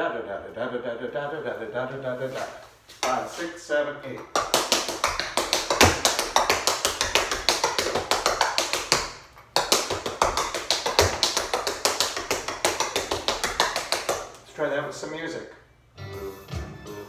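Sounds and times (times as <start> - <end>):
tap shoes on bamboo mat: 4.2 - 14.2.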